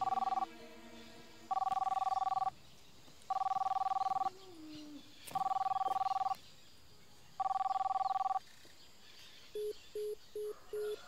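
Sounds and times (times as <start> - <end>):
telephone ringback tone: 0.0 - 0.5, 1.5 - 2.5, 3.3 - 4.3, 5.4 - 6.4, 7.4 - 8.4, 9.6 - 11.0.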